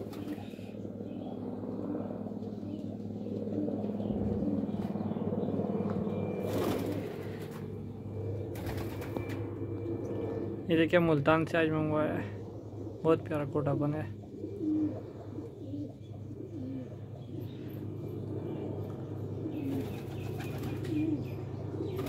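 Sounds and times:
wings flapping: 0.0s - 0.7s, 6.4s - 7.7s, 8.5s - 9.4s, 19.6s - 21.2s
pigeons cooing: 0.0s - 9.4s, 12.0s - 22.0s.

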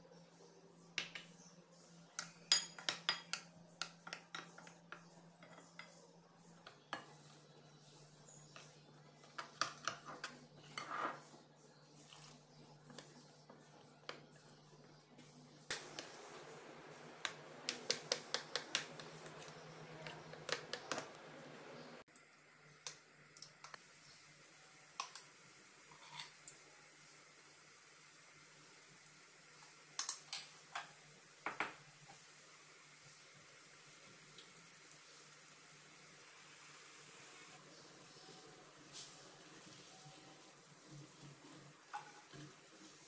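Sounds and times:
wet batter mixing: 6.6s - 22.1s, 37.5s - 43.0s.

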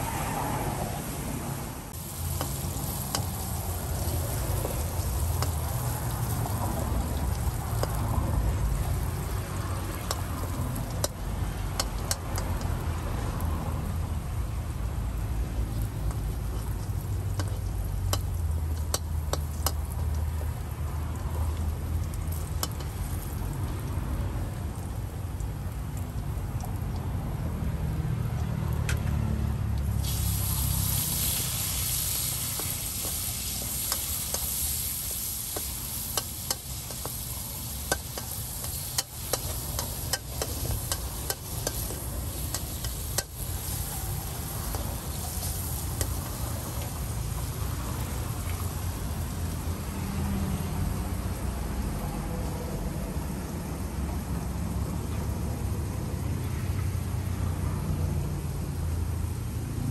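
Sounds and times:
loud sizzle: 0.0s - 52.0s
metal spatula scraping wok: 31.0s - 47.0s.

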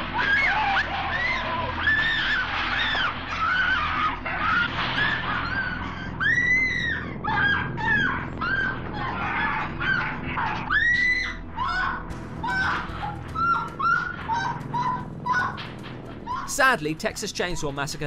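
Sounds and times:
woman screaming: 0.2s - 15.7s, 16.3s - 16.5s.

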